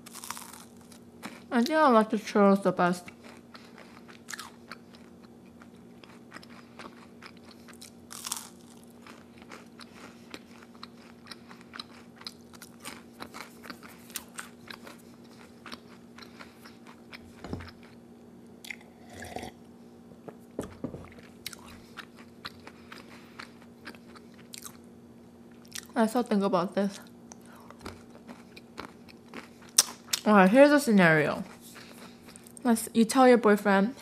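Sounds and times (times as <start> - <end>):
person chewing crunchy food: 0.0 - 1.5, 3.0 - 18.0, 18.6 - 19.6, 20.3 - 26.0, 27.3 - 30.3, 31.3 - 32.7
faint steady hum: 0.0 - 34.0
gulping milk: 18.7 - 19.6.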